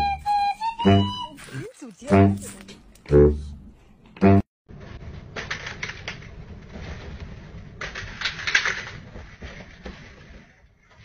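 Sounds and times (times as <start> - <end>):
bedding rustling: 6.2 - 11.0.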